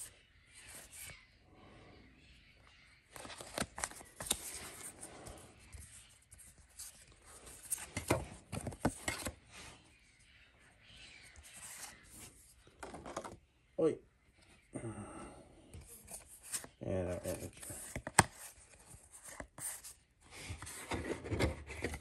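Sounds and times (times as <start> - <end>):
cards sliding and rustling: 3.1 - 9.6, 11.3 - 13.4, 15.9 - 22.0.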